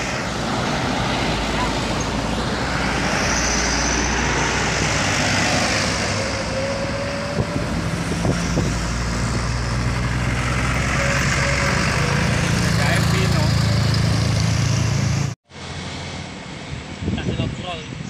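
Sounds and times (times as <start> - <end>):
truck engines running: 0.0 - 18.0
tyre and road noise: 0.0 - 18.0.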